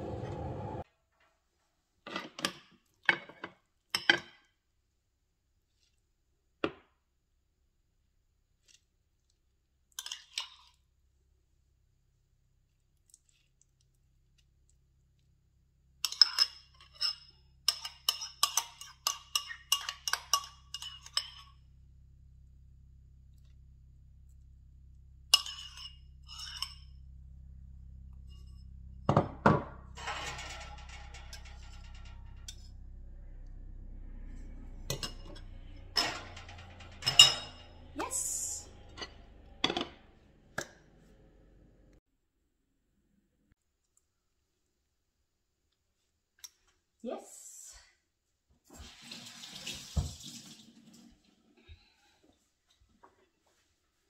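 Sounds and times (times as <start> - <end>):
spoon scraping ceramic bowl: 16.0 - 21.6, 25.4 - 26.9.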